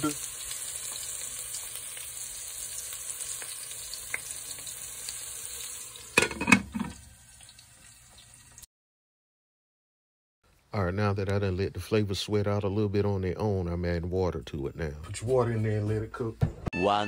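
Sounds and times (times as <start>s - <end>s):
meat sizzling in a pot: 0.0s - 8.7s
metal lid clanking on pot: 6.2s - 7.0s.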